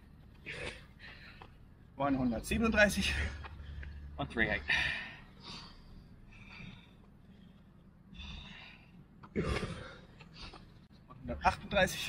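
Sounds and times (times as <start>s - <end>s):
person breathing heavily: 3.0s - 10.9s.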